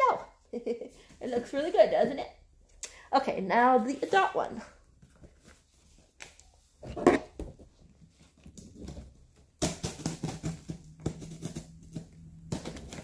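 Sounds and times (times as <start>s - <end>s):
cardboard box knock: 9.6s - 13.0s.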